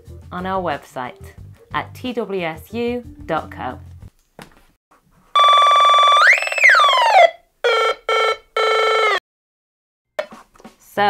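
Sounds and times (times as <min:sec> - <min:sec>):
buzzy electronic synth tone: 0:05.4 - 0:07.3.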